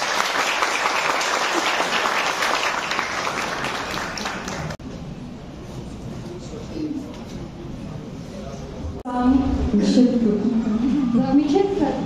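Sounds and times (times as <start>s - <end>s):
crowd applause: 0.0s - 4.8s.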